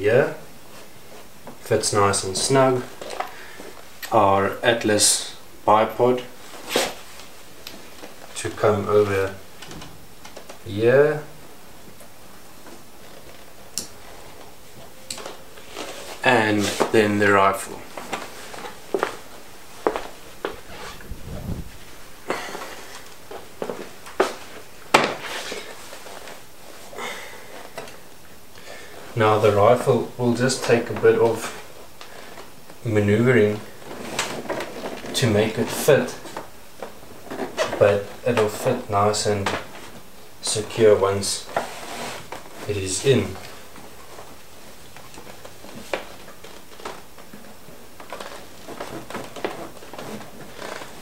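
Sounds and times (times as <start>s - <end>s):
scraping and rustling: 12.6s - 28.0s, 33.6s - 38.6s, 41.3s - 51.0s.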